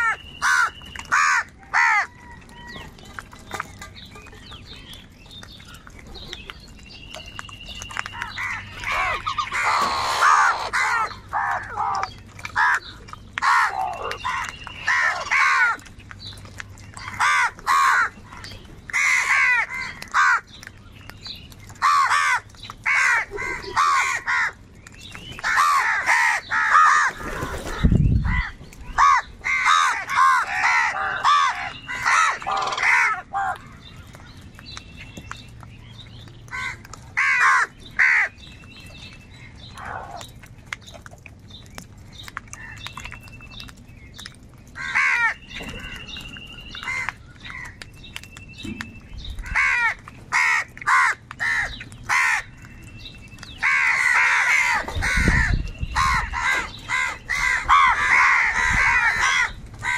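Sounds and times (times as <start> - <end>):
crows cawing: 0.0 - 2.3, 8.2 - 15.8, 17.0 - 18.2, 18.9 - 20.5, 21.8 - 24.6, 25.4 - 33.8, 36.5 - 38.3, 44.8 - 45.9, 46.8 - 47.8, 49.4 - 52.5, 53.6 - 59.9.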